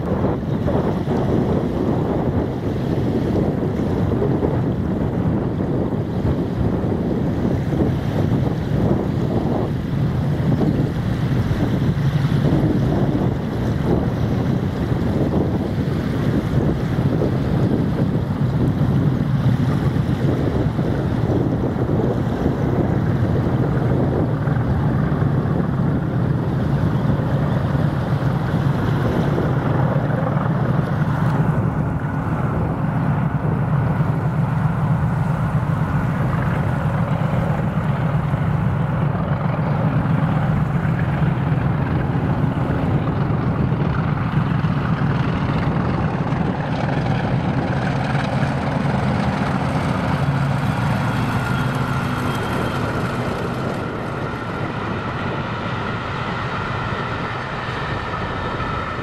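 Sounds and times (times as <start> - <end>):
diesel locomotive engines droning: 0.0 - 59.0
high-pitched locomotive whine: 19.6 - 59.0.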